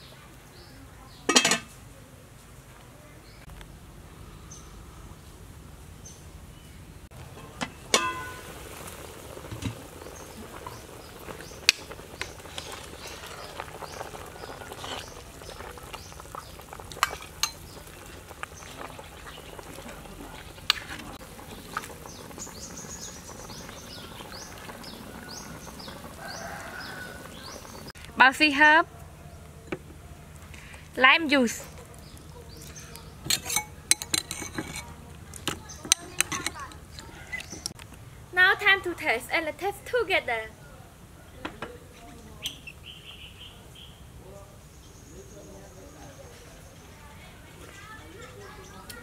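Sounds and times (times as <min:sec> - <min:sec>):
metal ladle clinking: 0:01.3 - 0:01.8, 0:07.6 - 0:08.5, 0:17.0 - 0:17.6, 0:33.2 - 0:37.5
metal pot lid clanking: 0:01.3 - 0:01.8, 0:07.6 - 0:08.5, 0:17.0 - 0:17.6, 0:33.2 - 0:36.8
soup boiling: 0:07.1 - 0:28.0, 0:29.4 - 0:37.9.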